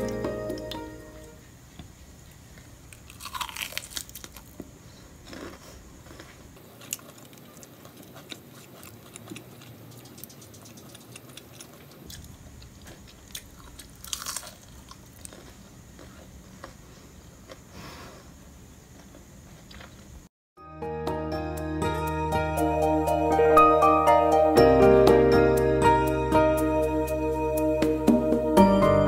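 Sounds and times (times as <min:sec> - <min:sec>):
chewing crunches: 0:02.5 - 0:17.7
crunchy food bite: 0:02.6 - 0:17.7.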